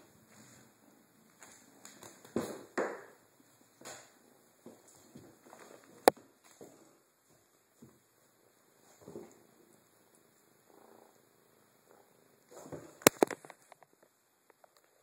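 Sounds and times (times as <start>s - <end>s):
kitten purring: 9.0s - 13.0s.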